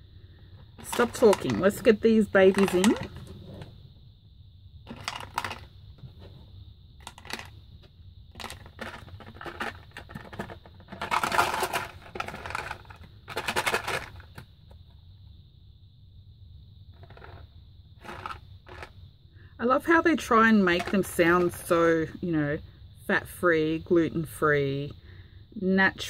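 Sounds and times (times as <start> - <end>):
counters rattling in shaken box: 0.8 - 3.3, 4.9 - 5.7, 7.0 - 7.5, 8.3 - 14.4, 18.0 - 18.9, 20.6 - 21.7
counters dropping into cardboard box: 8.4 - 14.4.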